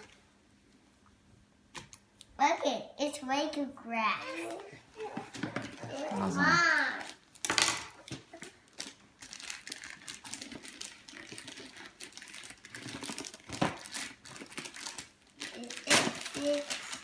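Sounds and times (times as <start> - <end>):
wrapping paper crinkling: 5.6 - 17.0.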